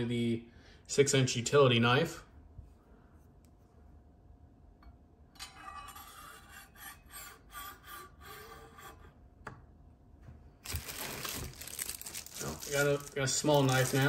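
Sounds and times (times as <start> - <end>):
packaging rustling: 10.6 - 14.0.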